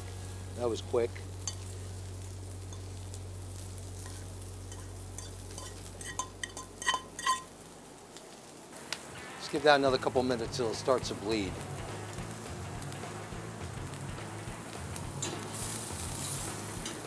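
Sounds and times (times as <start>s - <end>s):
low steady hum: 0.0s - 7.5s
eggs sizzling in frying pan: 0.0s - 17.0s
metal pan clinking on plate: 4.7s - 7.5s.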